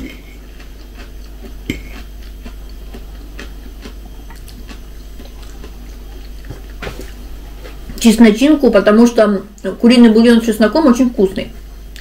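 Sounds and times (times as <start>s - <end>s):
chewing: 0.0s - 8.0s.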